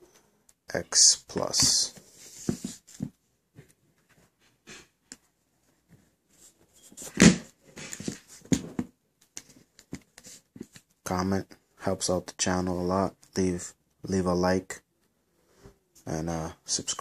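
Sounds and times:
soft rustles and light knocks: 1.3 - 4.9.

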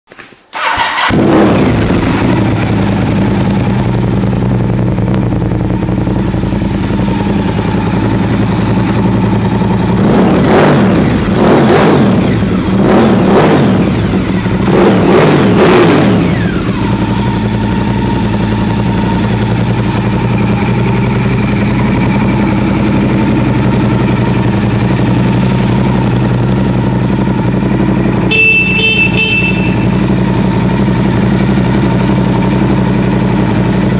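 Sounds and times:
motorcycle engine idling: 0.6 - 11.4, 12.0 - 33.9
high-pitched tone: 28.3 - 30.3.

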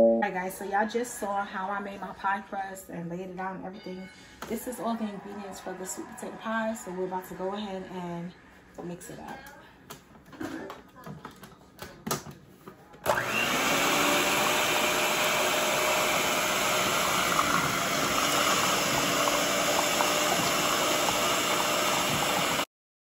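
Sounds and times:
stand mixer motor running: 13.1 - 22.7.

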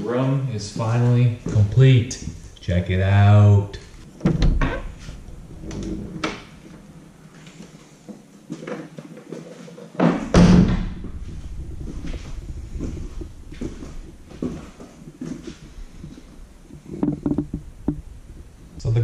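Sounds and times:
low rumbling: 0.5 - 7.9, 10.2 - 19.0
loud thump: 4.2 - 6.8, 10.1 - 12.4.

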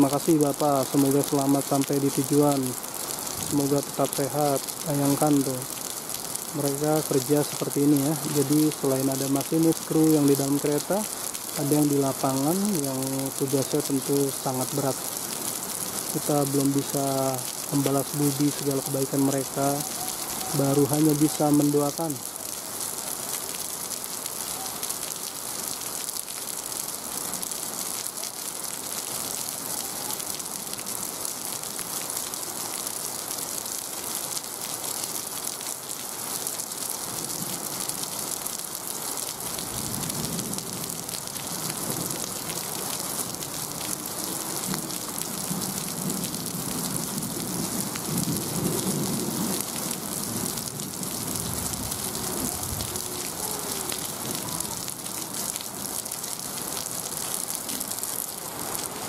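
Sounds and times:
heavy rain pouring: 0.0 - 59.0.

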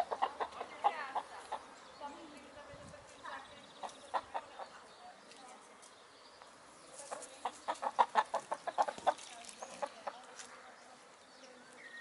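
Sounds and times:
hens clucking: 0.0 - 1.8, 3.8 - 4.9, 7.1 - 10.3.

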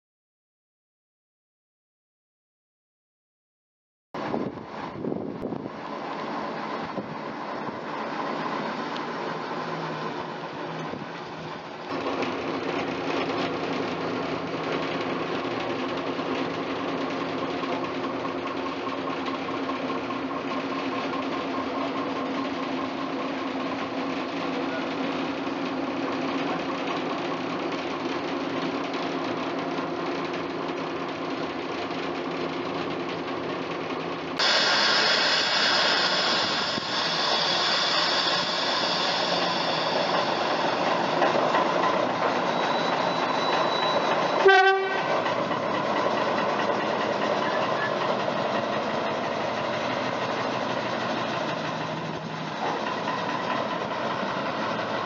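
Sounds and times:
diesel engine running steadily: 34.4 - 44.1, 44.8 - 55.0
loud hiss: 34.4 - 44.4.

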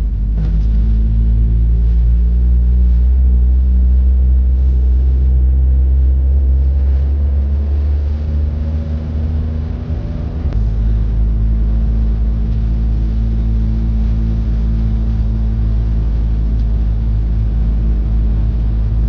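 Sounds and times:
car engine drone: 0.0 - 19.0
road rumble: 0.0 - 19.0.

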